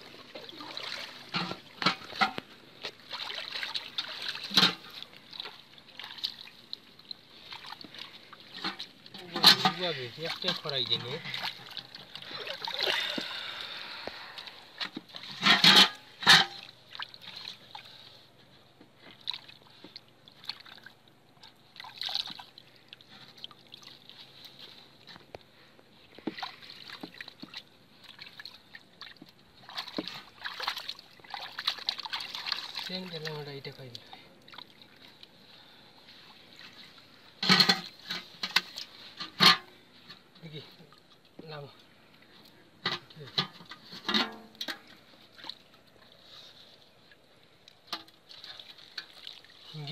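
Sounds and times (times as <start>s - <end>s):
fish splashing in a net: 0.0s - 9.1s, 9.7s - 15.3s, 19.1s - 25.0s, 26.2s - 33.1s, 47.7s - 49.7s
wet mud sloshing: 0.0s - 43.8s, 44.4s - 49.9s.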